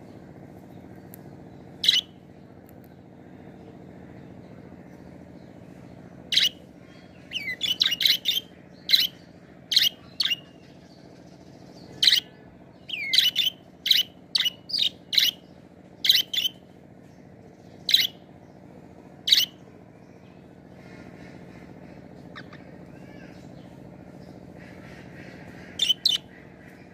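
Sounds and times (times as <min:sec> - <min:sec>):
low steady hum: 0:00.0 - 0:26.9
budgerigars chirping: 0:01.8 - 0:02.1, 0:07.3 - 0:10.5, 0:12.9 - 0:15.4, 0:16.0 - 0:16.6, 0:17.9 - 0:18.2, 0:24.6 - 0:26.4.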